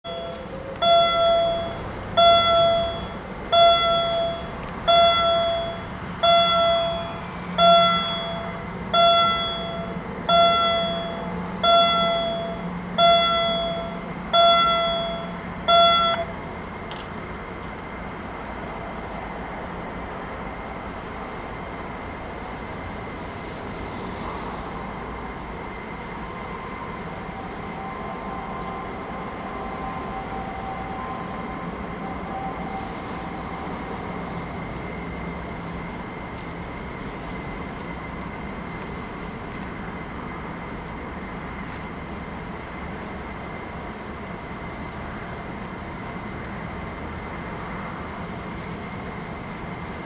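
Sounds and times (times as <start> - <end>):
level crossing warning gongs: 0.1 - 16.5.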